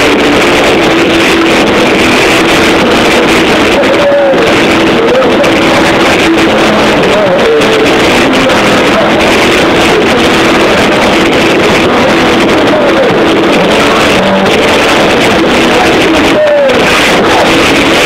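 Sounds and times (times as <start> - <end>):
punk rock band playing live: 0.0 - 18.0
man singing: 2.8 - 18.0.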